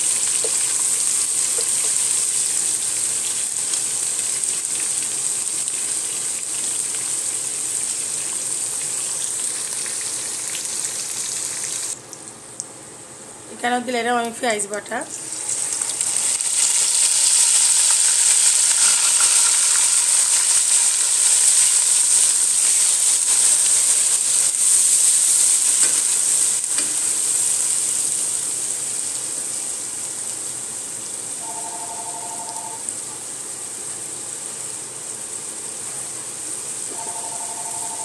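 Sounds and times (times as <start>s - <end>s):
onion paste sizzling in hot oil: 0.0s - 12.0s, 14.8s - 31.5s, 32.8s - 37.0s
wooden spoon stirring: 15.4s - 24.9s
phone ringing: 31.4s - 32.8s, 36.9s - 38.0s.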